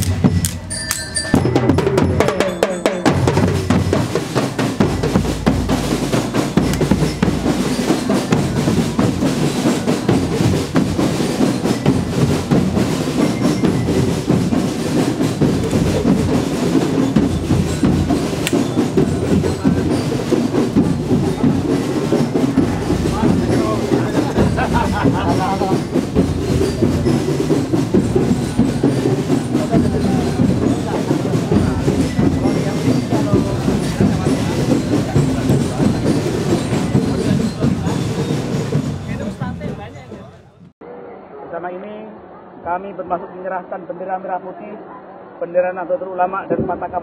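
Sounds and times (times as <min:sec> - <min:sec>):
marching drum band: 0:00.0 - 0:40.7.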